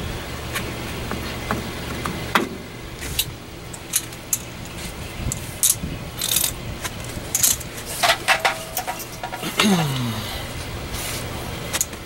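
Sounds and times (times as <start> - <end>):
low steady hum: 0.0 - 12.0
metal brake parts clinking: 3.2 - 10.2
metal jangling clatter: 7.3 - 9.6.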